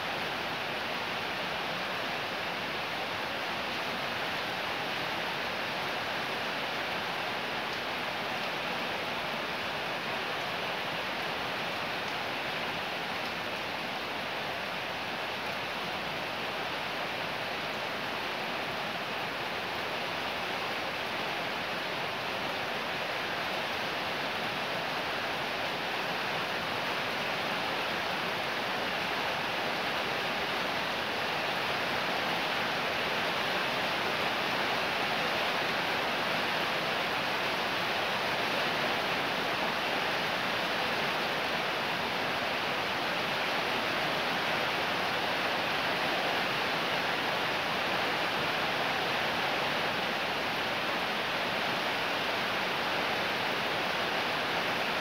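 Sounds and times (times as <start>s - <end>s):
heavy rain falling: 0.0s - 55.0s.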